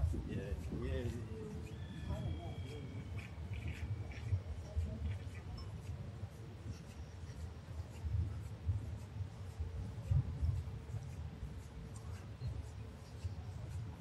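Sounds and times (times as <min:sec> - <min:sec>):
scratchy ticks: 0:00.0 - 0:14.0
wind buffeting microphone: 0:00.0 - 0:14.0.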